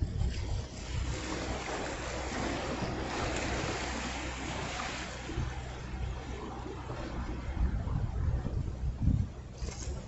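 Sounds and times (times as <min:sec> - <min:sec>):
surf washing against rocks: 0:00.0 - 0:06.4
wind buffeting microphone: 0:00.0 - 0:10.0.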